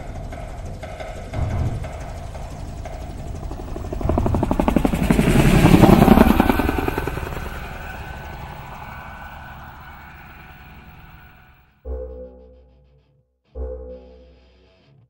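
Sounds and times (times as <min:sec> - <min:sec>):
helicopter rotor chopping: 0:00.0 - 0:11.5.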